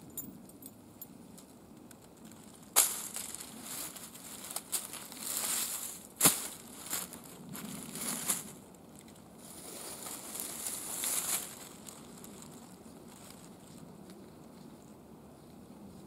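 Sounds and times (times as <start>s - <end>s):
dry leaves rustling and crackling: 2.1s - 14.8s.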